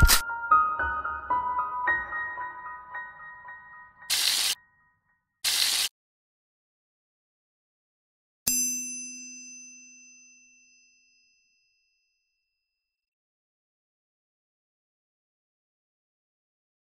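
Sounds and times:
bright bell-like ding: 0:08.5 - 0:12.4.

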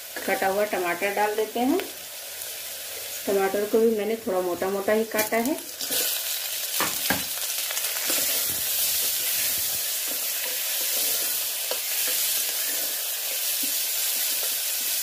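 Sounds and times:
vegetables sizzling in oil: 0:00.0 - 0:15.0
spatula scraping pot: 0:08.0 - 0:14.6.

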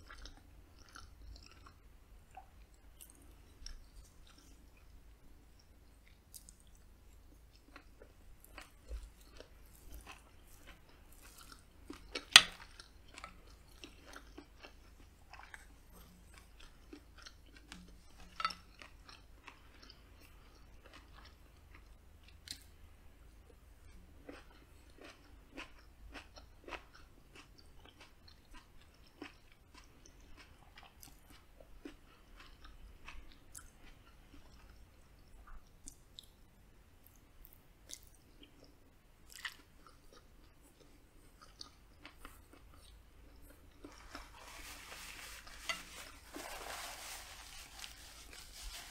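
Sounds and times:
close chewing with wet mouth sounds: 0:00.0 - 0:22.8, 0:23.5 - 0:45.8.

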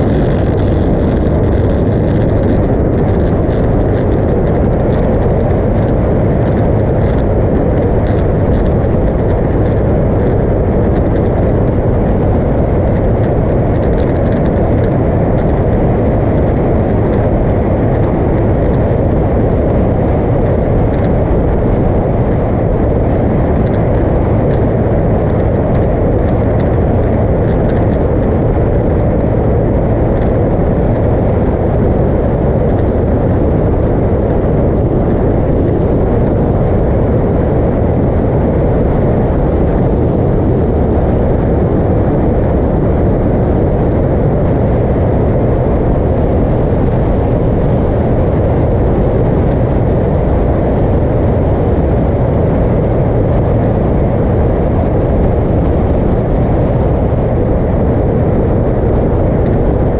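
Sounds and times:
motorcycle engine running: 0:00.0 - 0:32.5
wind rushing over microphone: 0:00.0 - 0:59.9.

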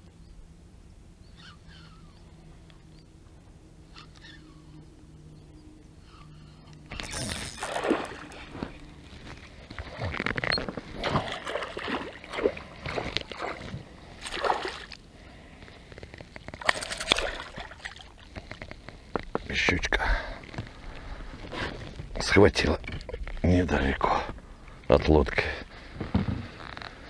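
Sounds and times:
fish splashing in water: 0:07.0 - 0:08.5, 0:10.9 - 0:15.0, 0:16.6 - 0:18.2.

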